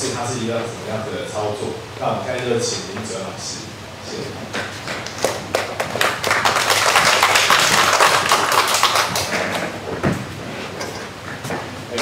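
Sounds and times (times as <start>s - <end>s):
audience applauding: 5.0s - 9.6s.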